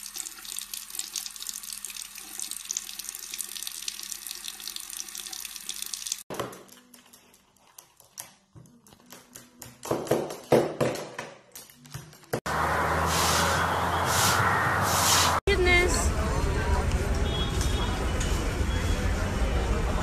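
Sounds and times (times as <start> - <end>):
tap water running into sink: 0.0 - 6.3.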